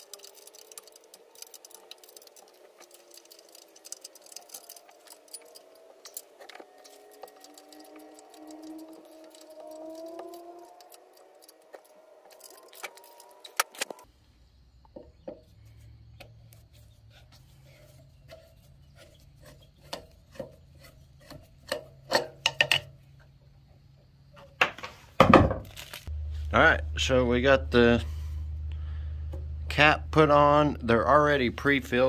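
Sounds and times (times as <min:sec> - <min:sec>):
low steady hum: 0:25.7 - 0:32.0.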